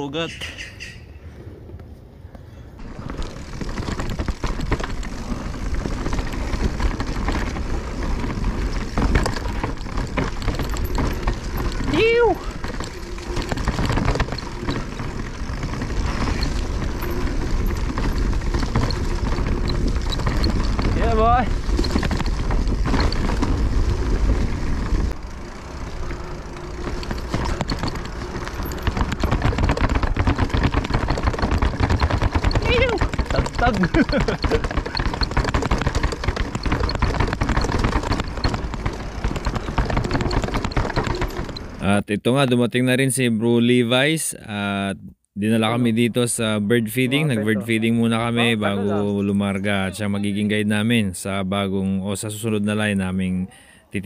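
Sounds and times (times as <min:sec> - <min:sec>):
bike rattling clicks: 0:02.8 - 0:41.9.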